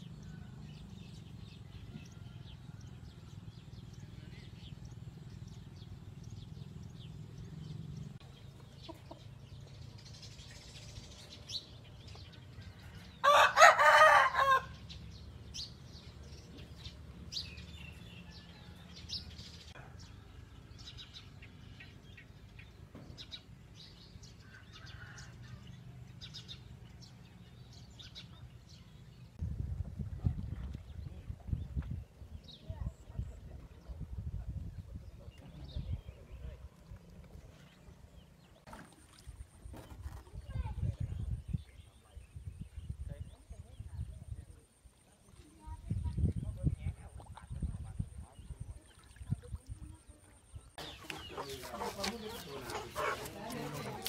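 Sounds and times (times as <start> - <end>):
rooster crowing: 13.2 - 14.8.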